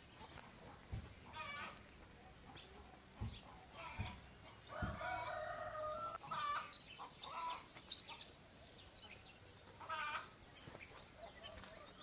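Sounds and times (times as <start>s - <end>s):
chickens clucking: 0.0s - 8.3s
small birds chirping: 0.0s - 12.0s.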